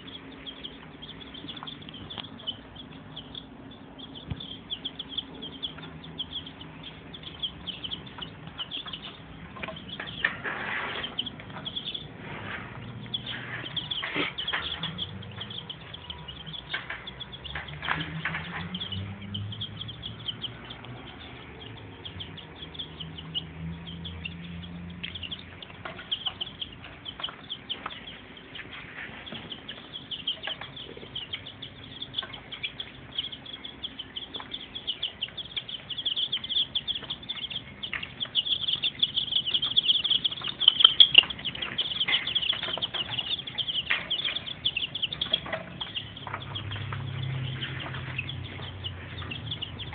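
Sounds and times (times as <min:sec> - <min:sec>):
chicks peeping: 0:00.0 - 0:49.9.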